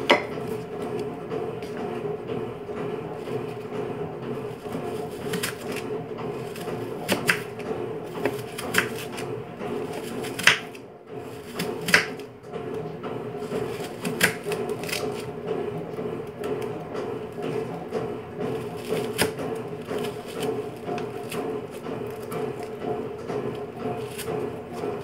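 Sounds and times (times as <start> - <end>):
knife knocking on cutting board: 0.0 - 0.5.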